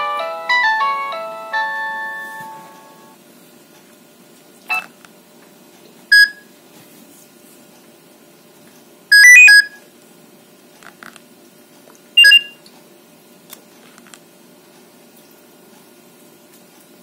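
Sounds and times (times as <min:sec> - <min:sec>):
phone ringtone: 0:00.0 - 0:03.2, 0:09.1 - 0:09.7
short electronic phone beeps: 0:06.1 - 0:06.4, 0:09.1 - 0:09.8, 0:12.2 - 0:12.6.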